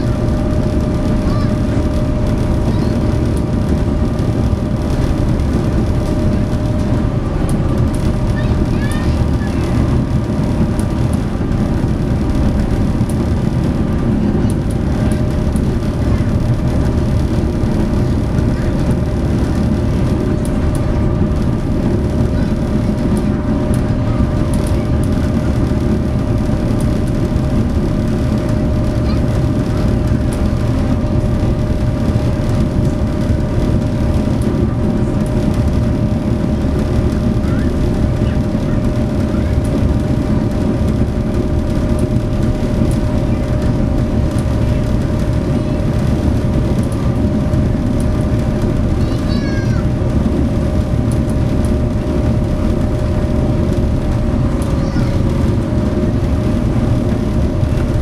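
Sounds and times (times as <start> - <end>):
ship diesel engines droning: 0.0 - 58.0.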